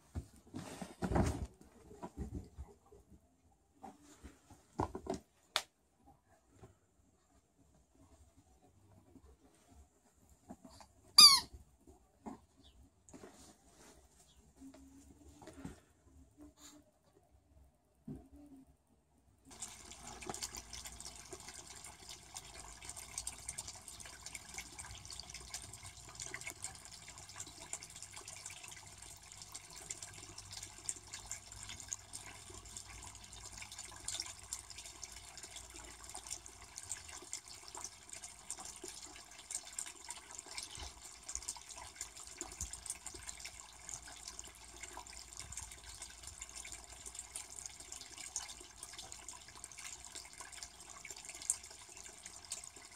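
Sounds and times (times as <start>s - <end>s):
water trickling into a pond: 19.4s - 52.9s.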